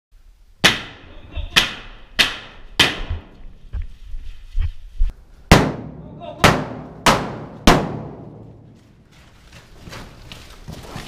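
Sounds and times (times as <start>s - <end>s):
sharp cracking impacts: 5.5s - 11.0s.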